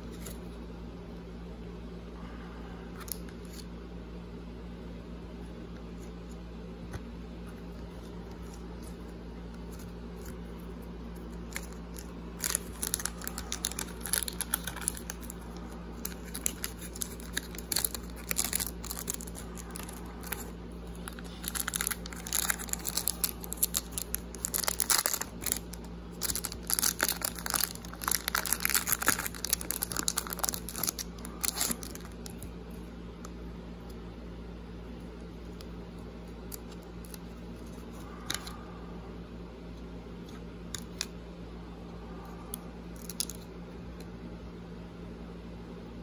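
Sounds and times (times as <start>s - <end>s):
foil packs crinkling and tearing: 11.4s - 32.4s.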